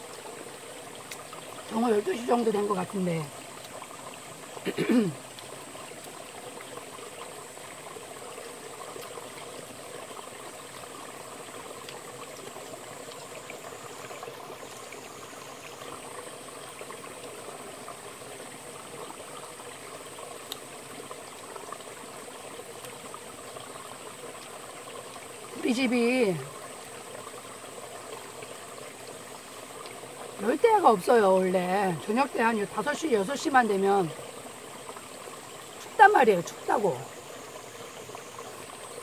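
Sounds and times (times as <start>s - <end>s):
stream flowing over rocks: 0.0s - 39.0s.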